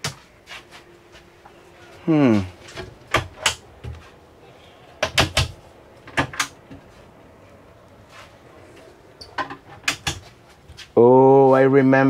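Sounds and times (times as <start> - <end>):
wooden door clicking and knocking: 2.8 - 4.0, 5.0 - 6.6, 9.3 - 10.3.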